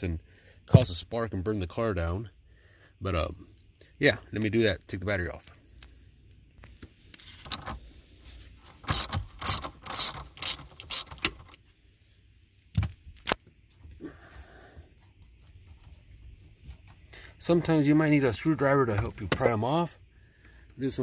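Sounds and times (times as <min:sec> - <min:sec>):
socket ratchet clicking: 0:08.8 - 0:11.6.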